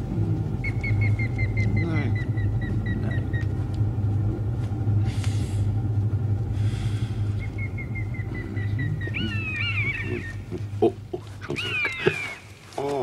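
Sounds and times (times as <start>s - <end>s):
steady low hum: 0.0s - 13.0s
rustling hisses: 5.0s - 5.8s, 6.5s - 7.5s.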